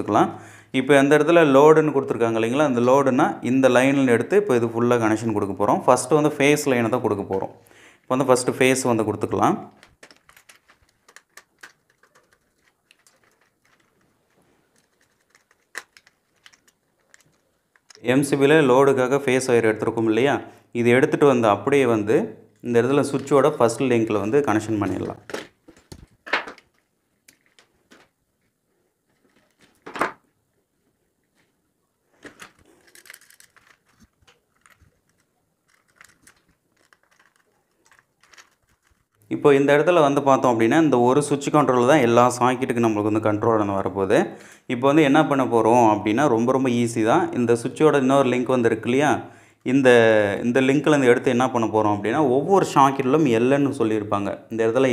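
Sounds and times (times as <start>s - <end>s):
hand tools and wire clicking: 9.7s - 18.1s, 24.8s - 29.9s, 32.2s - 39.2s
screwdriver ticking and scraping: 9.8s - 18.0s, 32.4s - 39.2s
small clicks of handling fittings: 14.8s - 18.0s, 32.4s - 39.1s.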